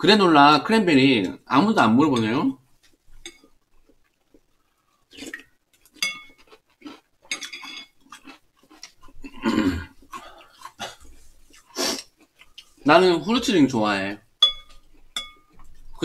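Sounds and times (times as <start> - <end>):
chewing and mouth sounds: 2.8 - 12.9, 14.6 - 16.0
spoons clinking on glass bowls: 6.0 - 6.4, 7.3 - 8.0, 14.4 - 15.7.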